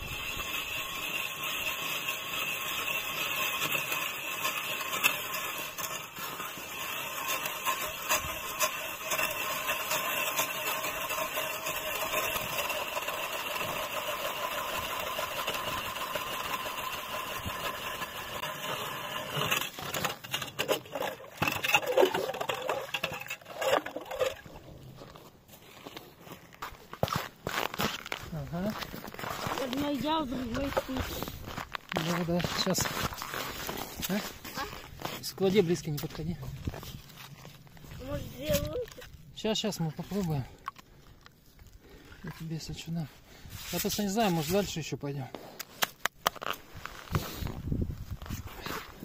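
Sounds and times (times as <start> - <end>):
ice auger motor whine: 0.0 - 20.1
knocks and rattles of auger: 0.0 - 24.6.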